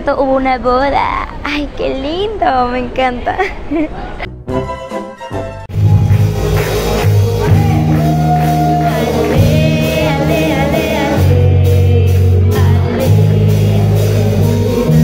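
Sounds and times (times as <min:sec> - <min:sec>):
snatch of different music: 0:04.5 - 0:15.0
band with heavy bass: 0:05.7 - 0:15.0
woman singing into microphone: 0:07.5 - 0:15.0.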